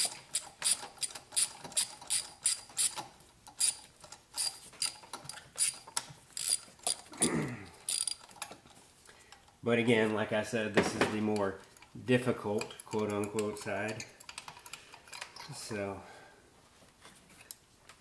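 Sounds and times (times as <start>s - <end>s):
hand ratchet clicking: 0.0s - 7.1s, 7.8s - 8.6s, 12.6s - 15.5s.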